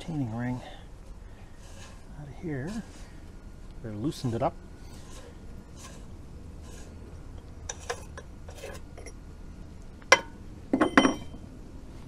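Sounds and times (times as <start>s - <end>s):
light scraping: 1.0s - 3.2s, 4.0s - 9.2s
metal tools handled on wood: 10.1s - 11.4s
ringing metal clinks: 10.8s - 11.4s.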